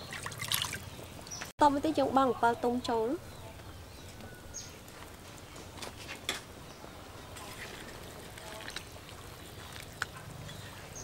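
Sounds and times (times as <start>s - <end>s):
soup simmering: 4.7s - 11.0s.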